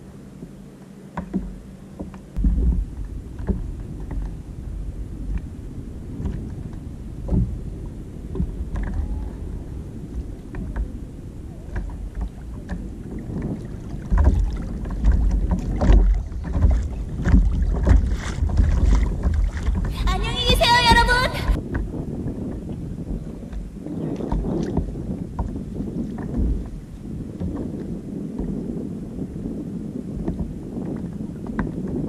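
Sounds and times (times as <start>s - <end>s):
wind rumbling on microphone: 0.0s - 32.0s
gear knocking against hull: 11.7s - 20.6s.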